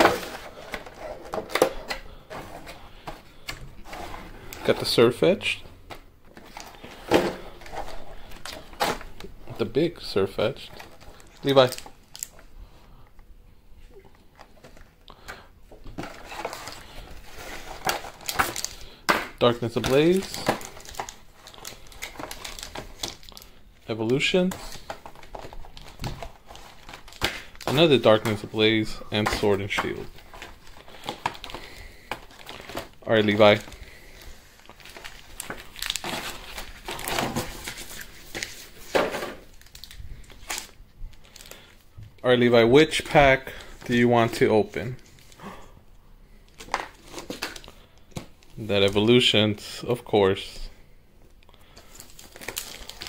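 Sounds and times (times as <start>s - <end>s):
foil packs rustling: 0.0s - 12.4s, 14.3s - 41.8s, 51.6s - 53.0s.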